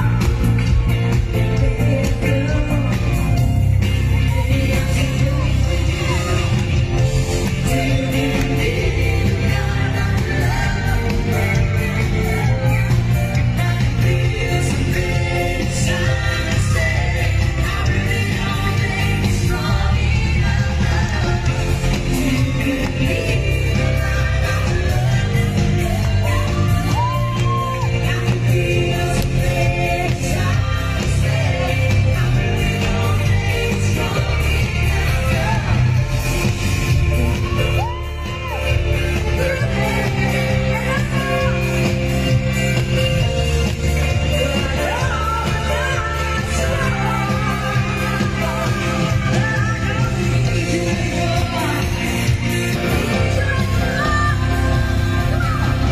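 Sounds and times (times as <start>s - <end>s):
amplified live band: 0.0s - 55.9s
person singing: 0.0s - 55.9s
crowd shouting: 26.2s - 28.3s, 37.2s - 38.9s.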